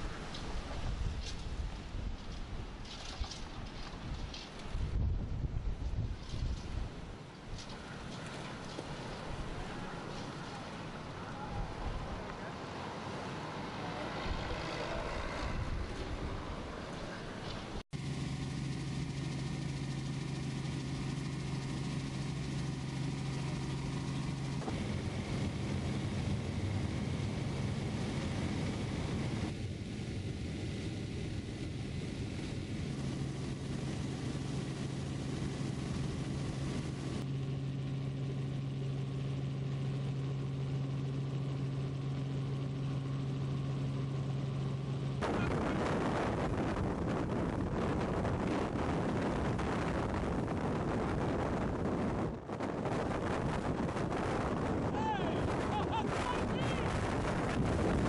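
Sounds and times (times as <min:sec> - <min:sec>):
wind noise rushing: 0:03.9 - 0:07.7, 0:14.2 - 0:16.9, 0:45.2 - 0:58.0
helicopter cabin engine drone: 0:05.4 - 0:58.0.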